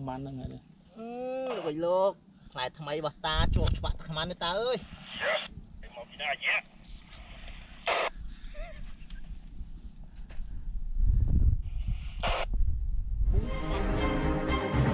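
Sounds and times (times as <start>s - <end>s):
insect trilling: 0.0s - 13.6s
low wind rumble: 7.3s - 13.6s
music: 13.3s - 14.9s.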